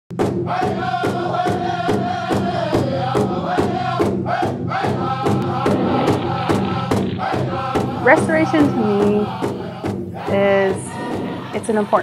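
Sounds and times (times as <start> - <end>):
steady drum beat: 0.1 - 12.0
group chanting: 0.4 - 12.0.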